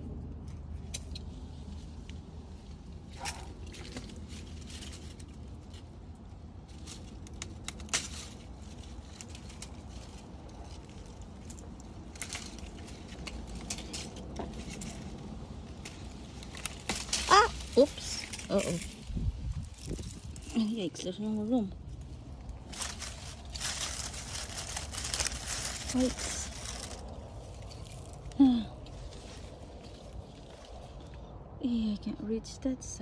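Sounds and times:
low steady rumble: 0.0s - 33.0s
leaves and netting rustling: 0.4s - 31.3s.

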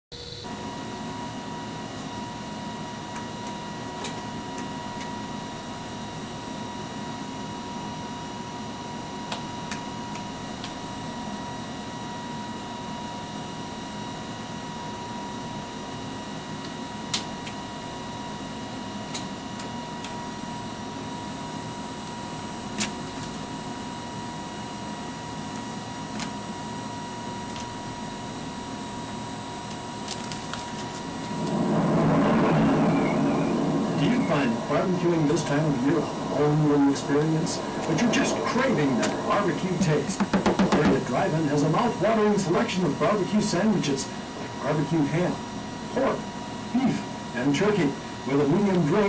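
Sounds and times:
videotape machines whirring: 24.3s - 49.0s
steady high tone: 31.0s - 44.0s.

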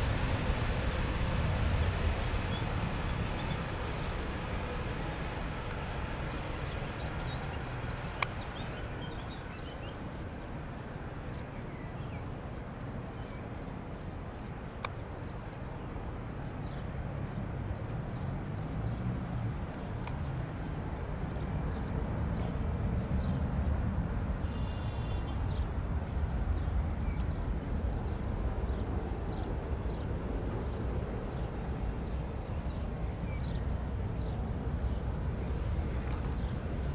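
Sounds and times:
jet engines rumbling: 0.0s - 36.9s
small birds chirping: 5.1s - 12.3s, 17.7s - 22.6s, 26.5s - 36.6s.

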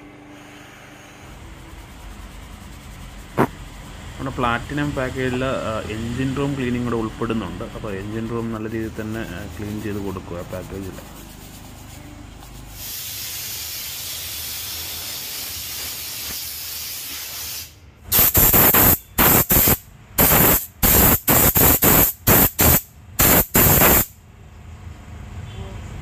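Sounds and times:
steady hiss: 12.7s - 24.1s.

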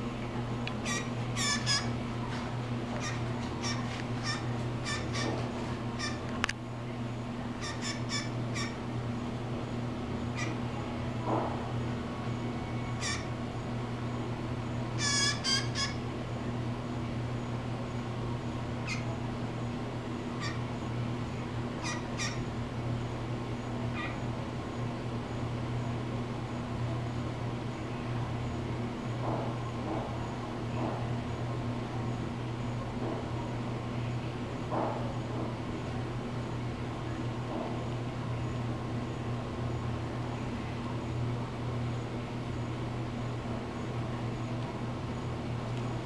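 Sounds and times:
steady low hum: 0.0s - 46.0s
blue jay short calls: 0.8s - 2.0s, 3.0s - 5.4s, 6.0s - 6.3s, 7.6s - 8.8s, 10.4s - 10.6s, 13.0s - 13.3s, 15.0s - 16.0s, 18.8s - 19.1s, 20.4s - 20.7s, 21.8s - 22.5s, 23.9s - 24.2s.

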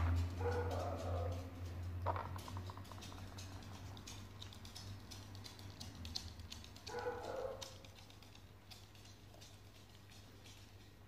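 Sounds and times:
claws clicking on wooden floor: 0.0s - 11.0s
puppy yipping: 0.3s - 1.6s, 6.8s - 8.0s.

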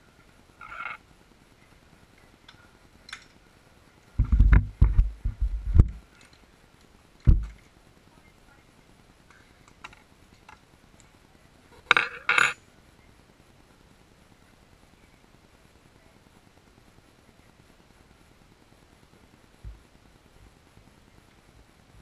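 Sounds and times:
dull low thumps and knocks: 4.2s - 6.0s, 7.3s - 7.6s.

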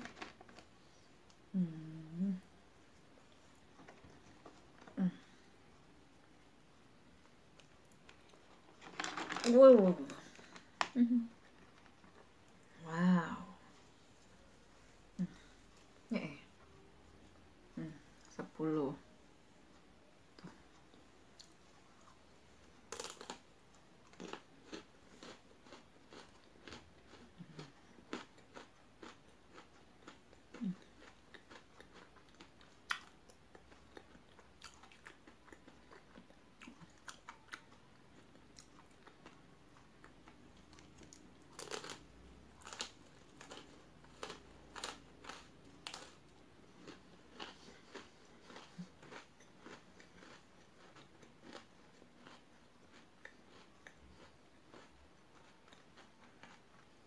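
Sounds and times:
crunching biscuit sticks: 0.0s - 1.4s, 7.2s - 12.6s, 20.4s - 57.0s.

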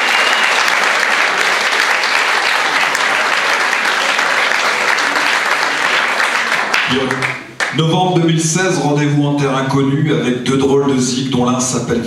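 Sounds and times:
crowd applauding: 0.0s - 7.9s.

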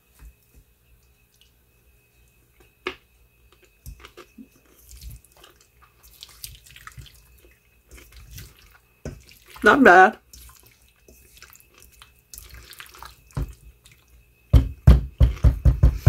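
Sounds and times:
spatula stirring potato salad: 3.6s - 14.2s.

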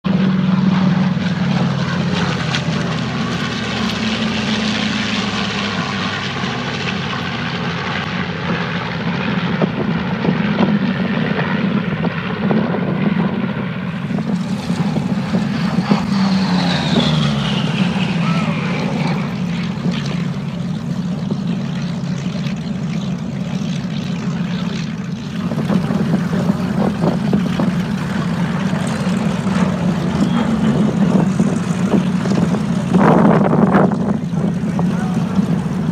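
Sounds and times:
propeller plane engines droning: 0.0s - 35.9s.

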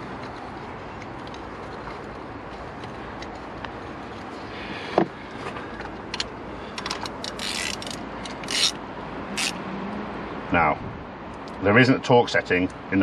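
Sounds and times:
socket ratchet clicking: 6.2s - 8.8s, 9.4s - 9.6s.

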